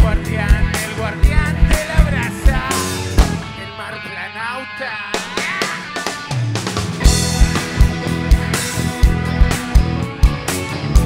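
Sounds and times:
bass drum steady beat: 0:00.0 - 0:03.6, 0:07.0 - 0:11.0
drum kit: 0:00.0 - 0:04.1, 0:05.1 - 0:11.0
electric guitars: 0:00.0 - 0:11.0.

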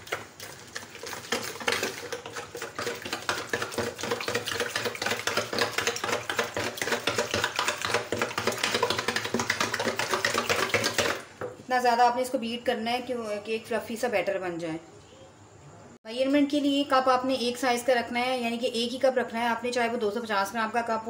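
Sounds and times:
liquid sloshing: 0:00.0 - 0:11.4
whisk wires clicking on bowl: 0:00.0 - 0:11.5.

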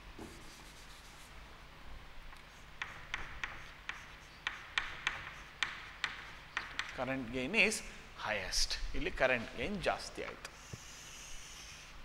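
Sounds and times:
chalk tapping and scraping on board: 0:00.2 - 0:01.3, 0:02.4 - 0:07.2, 0:10.2 - 0:11.9.

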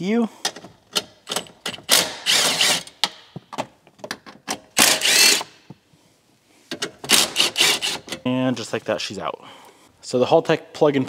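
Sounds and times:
cordless impact driver running: 0:01.9 - 0:02.8, 0:04.8 - 0:05.5, 0:07.3 - 0:08.0.

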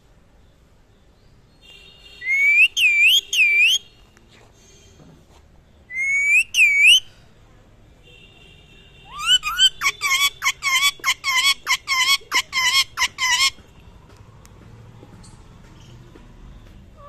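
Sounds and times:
parakeet calling: 0:02.2 - 0:03.9, 0:05.9 - 0:07.0, 0:09.1 - 0:13.6.

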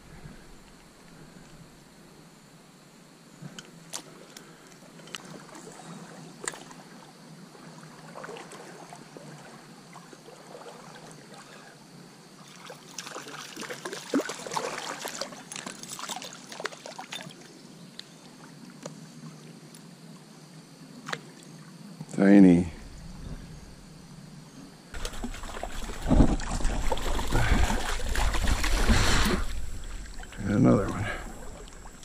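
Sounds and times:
stream water running: 0:03.6 - 0:32.0
irregular splashing: 0:12.5 - 0:17.3, 0:25.0 - 0:32.0.

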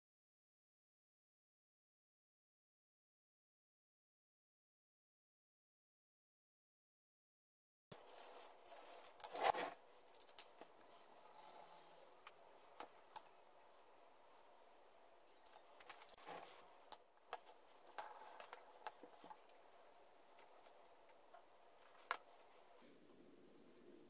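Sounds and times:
wooden parts clicking and tapping: 0:15.4 - 0:22.3.

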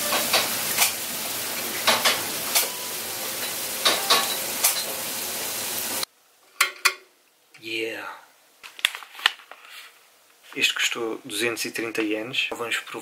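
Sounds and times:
food sizzling in a pan: 0:00.0 - 0:06.1
dishes or utensils clinking: 0:01.8 - 0:05.0.

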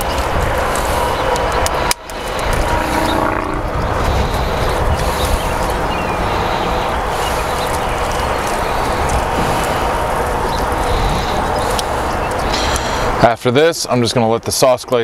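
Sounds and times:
low rumble: 0:02.2 - 0:13.0.

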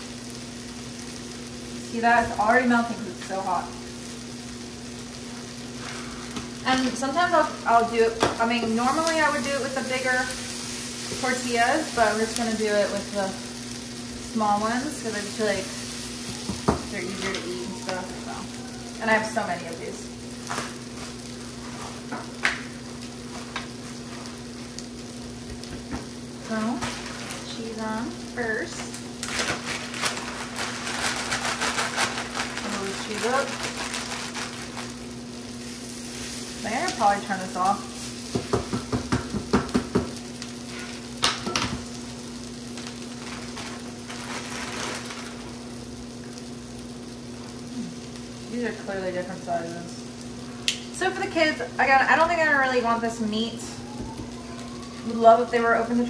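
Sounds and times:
food sizzling in frying pans: 0:00.0 - 0:56.0
plastic bag crinkling: 0:26.4 - 0:38.2, 0:42.7 - 0:46.0.

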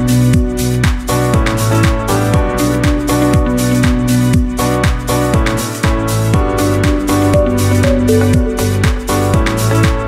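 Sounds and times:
electronic dance music: 0:06.9 - 0:09.6.

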